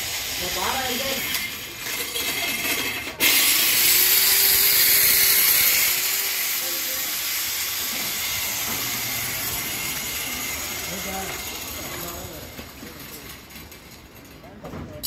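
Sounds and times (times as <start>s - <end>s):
loud steady hiss: 0.0s - 1.8s, 3.2s - 12.0s.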